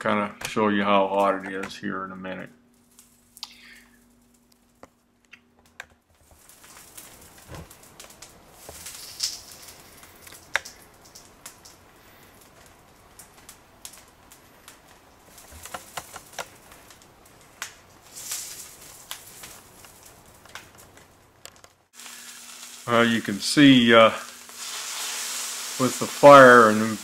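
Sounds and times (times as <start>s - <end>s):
faint hiss: 2.4s - 4.5s, 6.3s - 20.4s, 21.9s - 27.0s
crackles and pops of burning: 2.6s - 27.0s
loud snaps: 3.4s - 3.8s.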